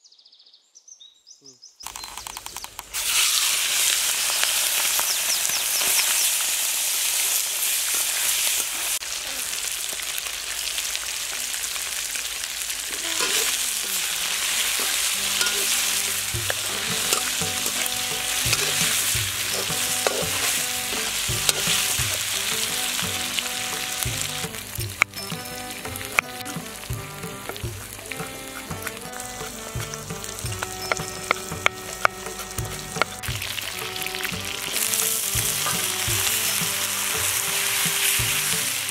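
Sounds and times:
chicken sizzling in pan: 2.9s - 38.9s
metal spoon clicking on pan: 14.8s - 15.8s, 16.4s - 22.2s, 29.8s - 33.2s.

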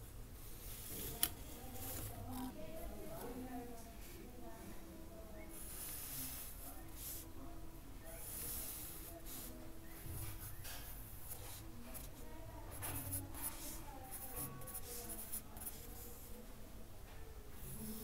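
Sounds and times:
pencil scratching on paper: 8.1s - 16.4s.

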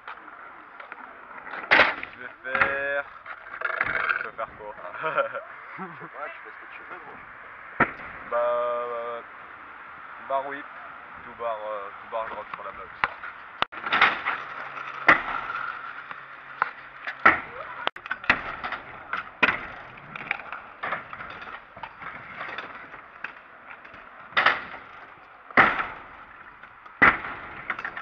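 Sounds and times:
scooter wheels rolling on concrete: 0.0s - 28.0s
scooter landing clacks and slams: 1.4s - 4.4s, 12.5s - 28.0s.

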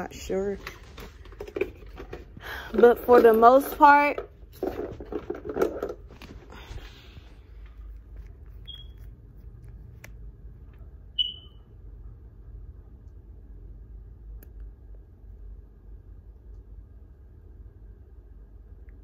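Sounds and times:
low steady hum: 0.0s - 19.0s
short high-pitched beeps: 11.2s - 11.6s.

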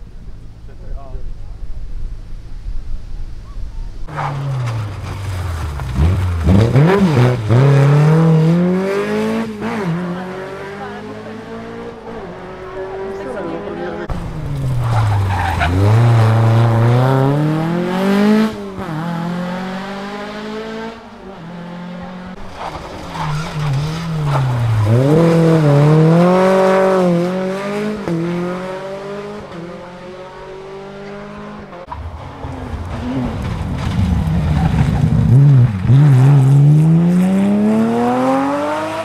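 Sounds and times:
rally car engine revving: 3.4s - 39.0s.

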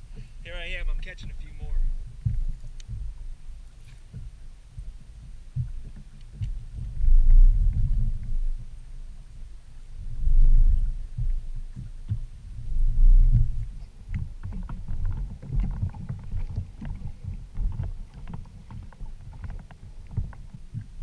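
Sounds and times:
water lapping against boat hull: 0.0s - 21.0s
light knocks and splashes: 13.3s - 21.0s.

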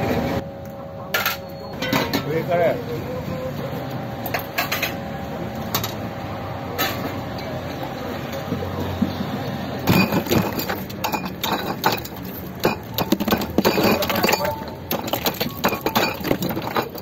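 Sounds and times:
steady background noise: 0.0s - 17.0s
dishes and utensils clattering: 1.2s - 2.3s, 9.8s - 17.0s.

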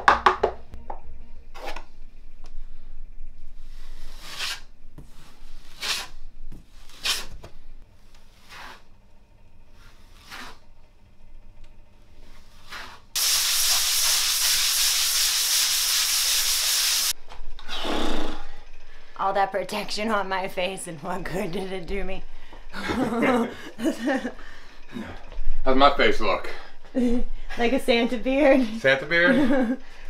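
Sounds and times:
taping knife scraping compound: 3.7s - 9.0s, 9.7s - 10.7s, 12.2s - 13.2s
loud steady hiss: 13.2s - 17.1s.

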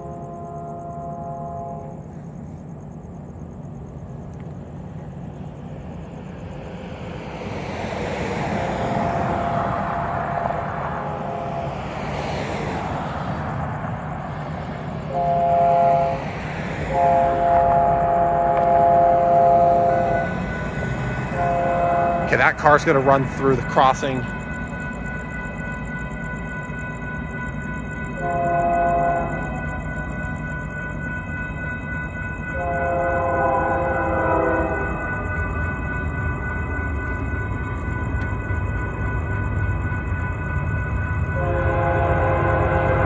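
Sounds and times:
locomotive horn blasts: 0.0s - 2.2s, 8.7s - 12.0s, 15.0s - 24.4s, 28.1s - 31.4s, 32.3s - 35.5s, 41.3s - 43.0s
train rumble: 0.0s - 43.0s.

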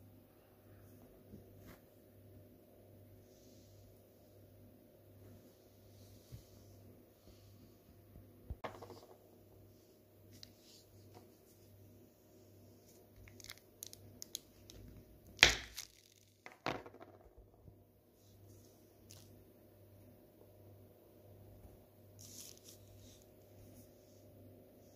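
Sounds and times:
paper crinkling: 13.2s - 14.9s, 22.2s - 23.2s.

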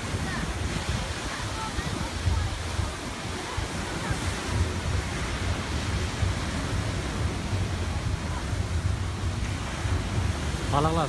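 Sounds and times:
water rushing: 0.0s - 11.0s
wind buffeting microphone: 0.0s - 11.0s.

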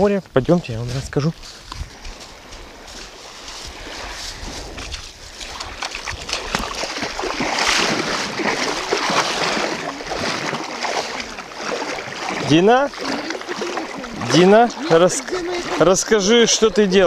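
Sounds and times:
wind noise: 0.0s - 10.6s
water lapping and sloshing: 1.4s - 17.0s
small splashes: 1.9s - 16.8s.

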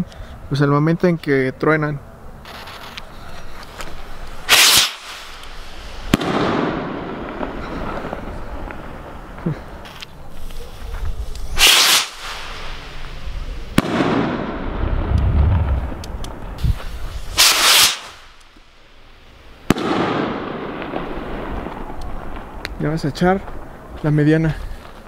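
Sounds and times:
rocket hissing whoosh: 2.4s - 8.8s, 10.3s - 22.0s
rocket bursting with sharp bang: 4.4s - 8.8s, 11.5s - 16.0s, 16.6s - 18.4s, 19.6s - 22.6s
low rumbling echo: 12.4s - 16.8s.

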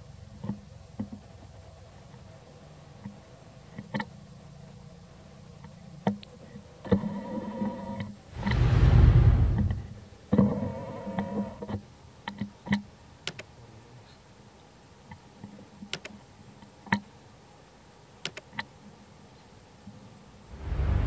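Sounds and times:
low rumble: 8.4s - 10.0s, 20.5s - 21.0s
mouse clicks: 13.2s - 13.5s, 15.9s - 16.2s, 18.2s - 18.7s.

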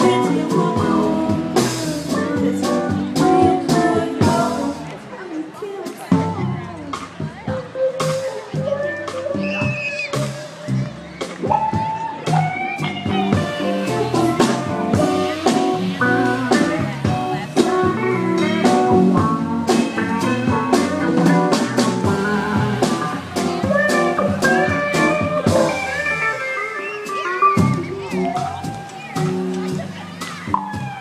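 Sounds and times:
drum kit: 0.0s - 5.1s, 5.8s - 31.0s
keyboards: 0.0s - 31.0s
electric guitar: 7.5s - 31.0s.

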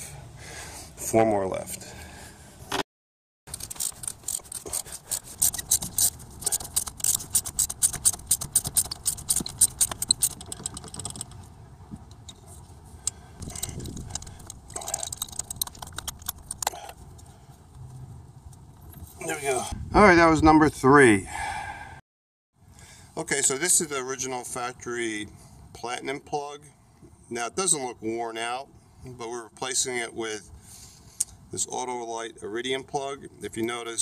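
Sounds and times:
ratchet wrench clicking: 3.5s - 11.4s.

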